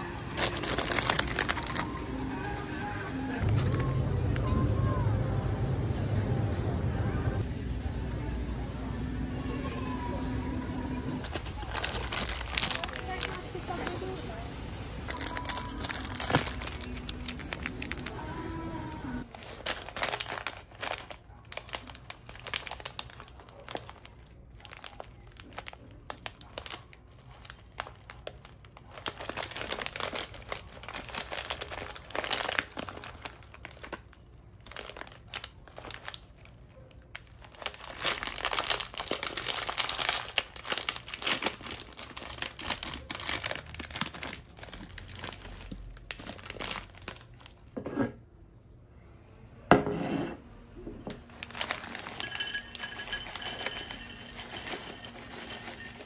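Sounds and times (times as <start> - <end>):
foil snack bag crinkling: 0.0 - 2.6, 11.2 - 14.4, 15.0 - 47.8, 51.2 - 56.0
bag tearing open: 0.3 - 2.1, 11.2 - 13.8, 15.1 - 18.6, 19.2 - 36.5, 37.1 - 47.6, 51.2 - 52.3.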